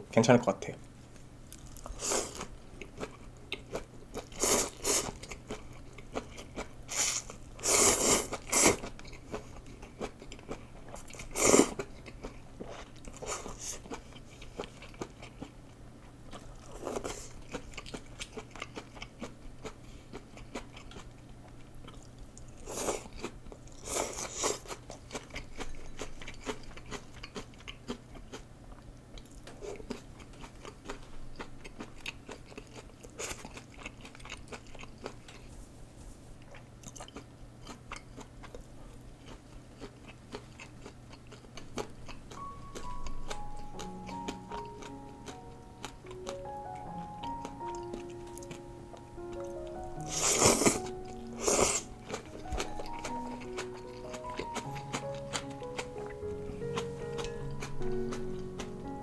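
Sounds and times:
wet chewing and crunching: 1.5s - 35.5s, 36.4s - 59.0s
slurping noodles: 6.9s - 8.9s, 50.1s - 51.9s.

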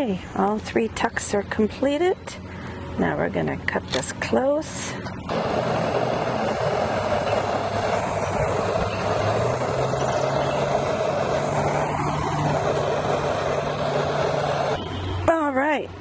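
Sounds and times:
hand torch burning: 3.9s - 14.9s.

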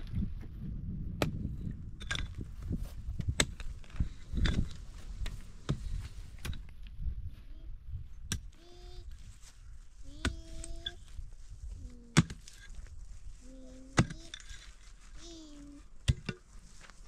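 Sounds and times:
pickaxe striking stony ground: 3.3s - 3.7s.

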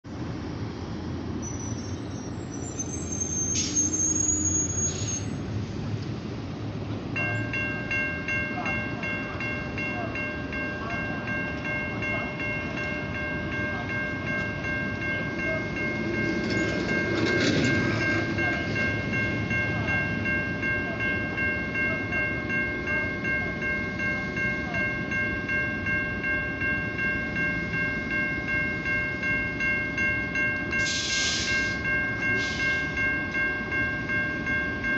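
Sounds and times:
freight train rumble: 0.1s - 34.9s
railroad crossing bell ringing: 0.2s - 34.9s
high squeal: 1.4s - 5.5s.

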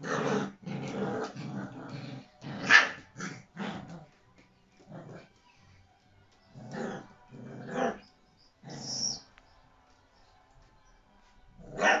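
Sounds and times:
puppies yapping and growling: 6.5s - 9.3s.

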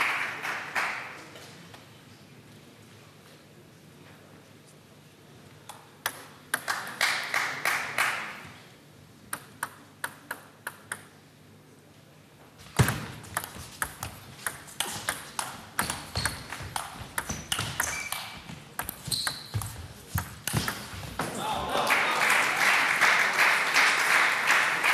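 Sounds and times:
table tennis ball hits: 12.6s - 21.4s
short high squeaks: 17.4s - 18.4s, 19.0s - 19.6s.

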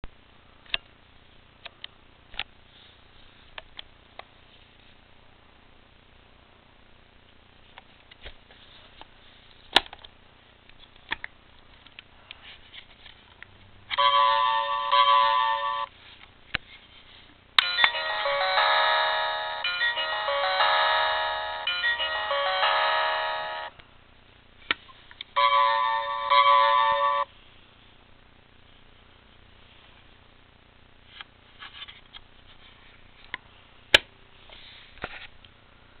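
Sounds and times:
electronic toy melody: 14.0s - 15.9s, 17.6s - 23.8s, 25.4s - 27.3s
electronic chime: 17.6s - 23.7s, 25.4s - 27.3s.

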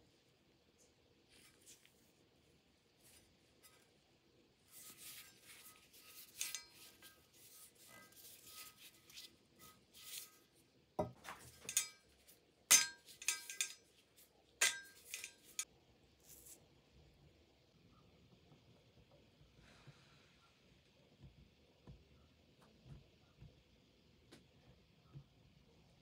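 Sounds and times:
metal tool clinking and scraping: 4.7s - 15.7s.

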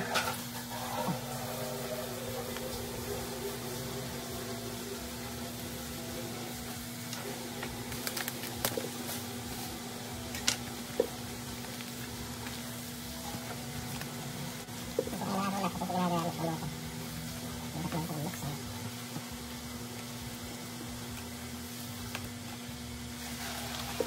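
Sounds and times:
steady low hum: 0.0s - 24.0s
plastic packaging crinkling: 7.5s - 10.7s.

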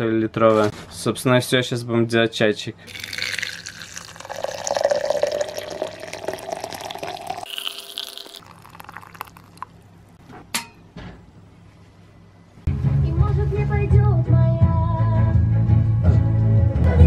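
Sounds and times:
faint water drips: 2.9s - 9.8s
water pouring into glass: 2.9s - 9.9s.

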